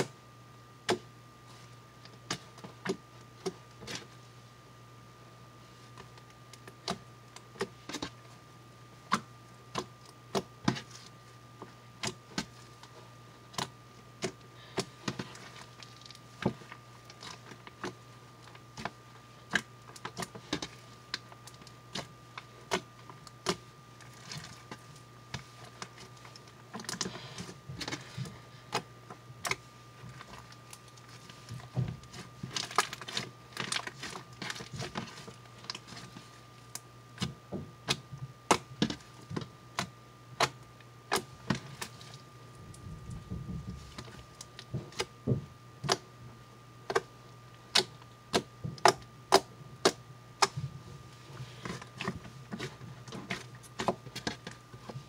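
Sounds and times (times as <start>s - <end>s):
steady low hum: 0.0s - 55.0s
sticky slime crackling: 9.1s - 45.1s, 51.4s - 55.0s.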